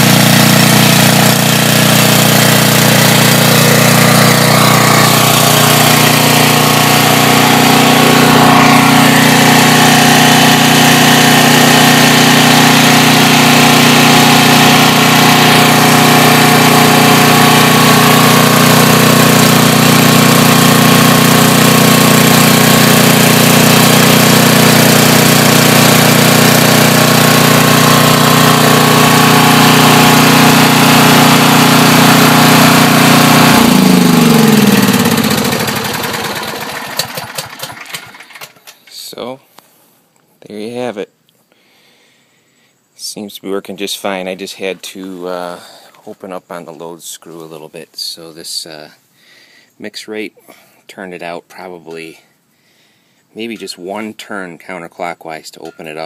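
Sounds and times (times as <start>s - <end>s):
generator engine running: 0.0s - 39.1s.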